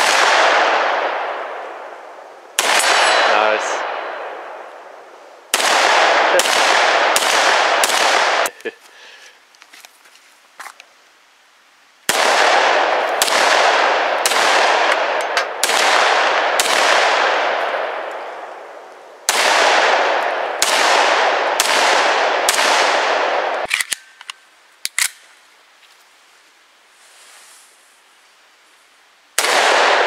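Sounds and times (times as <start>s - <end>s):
handgun shots echoing: 12.1s - 17.4s.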